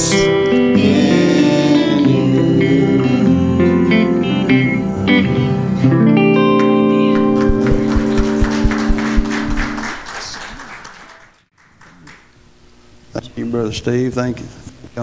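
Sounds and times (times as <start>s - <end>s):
guitars holding final chord: 0.0s - 9.8s
low thuds: 7.4s - 9.7s.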